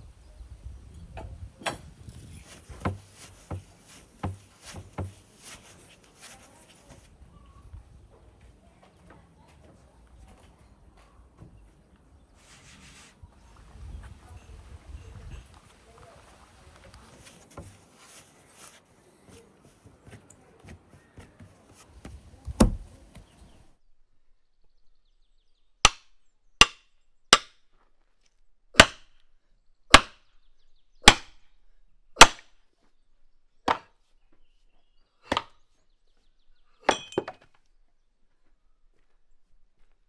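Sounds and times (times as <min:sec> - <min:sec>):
axe chopping firewood: 0:01.6 - 0:05.6, 0:22.0 - 0:22.9, 0:25.8 - 0:27.6, 0:28.7 - 0:29.1, 0:29.9 - 0:30.2, 0:31.0 - 0:31.4, 0:32.2 - 0:32.5, 0:33.7 - 0:34.0, 0:35.2 - 0:35.6, 0:36.8 - 0:37.5
heavy thud: 0:02.6 - 0:05.2, 0:22.5 - 0:23.0.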